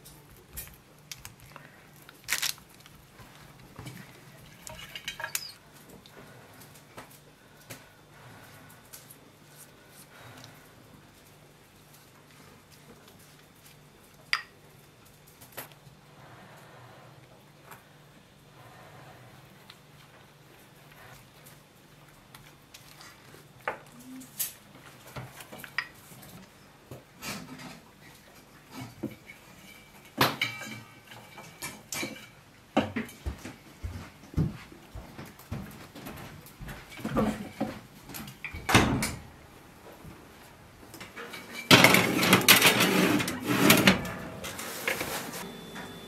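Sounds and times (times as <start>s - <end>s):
dishes and utensils clinking: 4.4s - 5.6s, 28.7s - 33.3s
baking tray scraping on oven rails: 41.2s - 45.4s.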